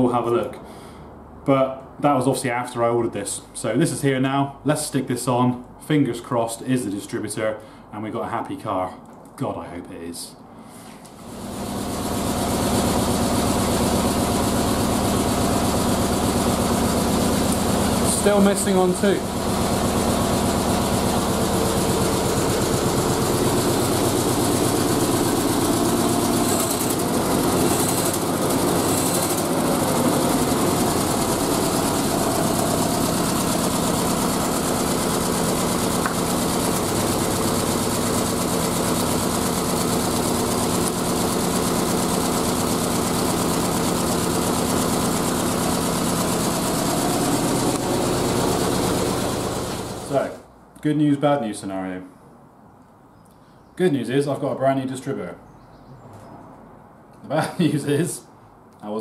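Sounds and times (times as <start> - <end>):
car engine running and misfiring: 11.2 - 50.2.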